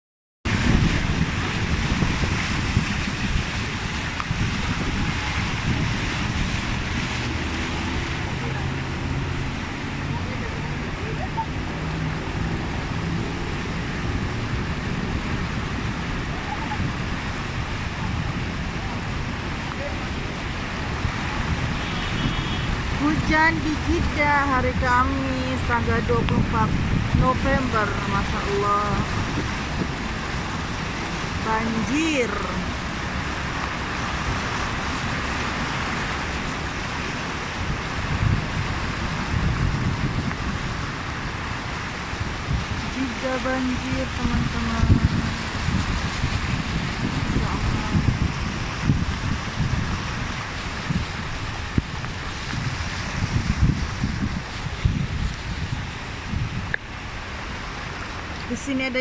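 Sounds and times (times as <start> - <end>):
car engine and tyres rumbling: 0.5 - 59.0
water washing from wheels: 0.5 - 59.0.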